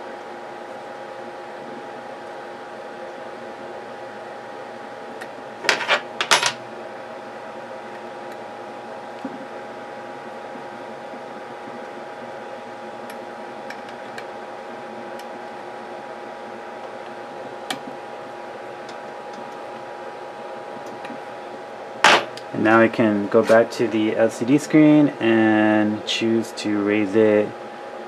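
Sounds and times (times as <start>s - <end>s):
fan hum with steady tones: 0.0s - 28.0s.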